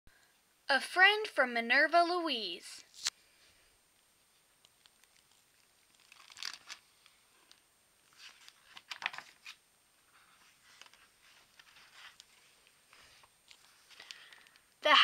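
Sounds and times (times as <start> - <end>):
book pages turning: 2.8 - 3.2, 4.7 - 14.6.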